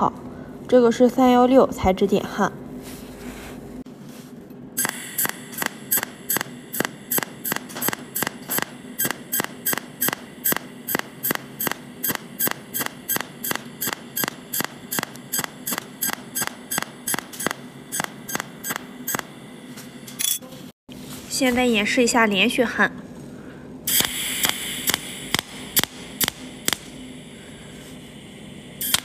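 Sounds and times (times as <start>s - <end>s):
welding machine hum: 4.7s - 20.2s, 23.8s - 29.0s
welding arc snapping: 4.8s - 19.4s, 23.9s - 27.2s, 28.8s - 29.0s.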